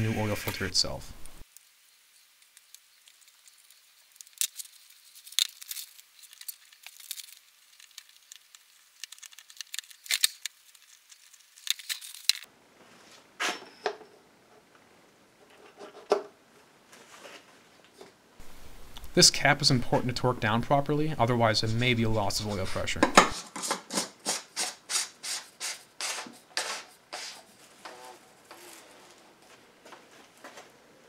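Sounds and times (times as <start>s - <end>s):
plastic crinkling: 2.5s - 12.5s.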